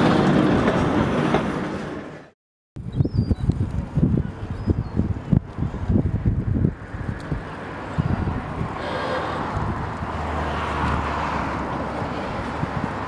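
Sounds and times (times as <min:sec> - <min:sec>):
wheels on rails: 0:00.0 - 0:02.3, 0:03.4 - 0:13.0
wind buffeting microphone: 0:02.8 - 0:13.0.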